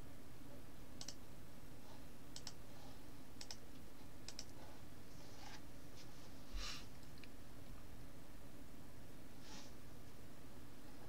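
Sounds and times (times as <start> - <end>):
faint background hum: 0.0 - 11.0
computer mouse clicks: 1.0 - 1.2, 2.3 - 2.6, 3.4 - 4.6.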